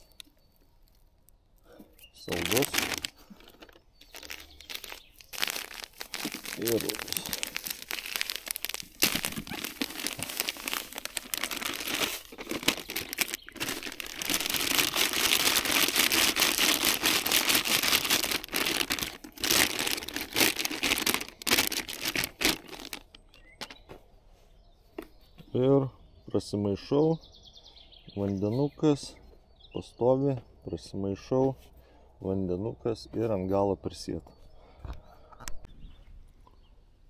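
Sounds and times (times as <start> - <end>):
plastic bags crinkling: 2.2 - 23.8.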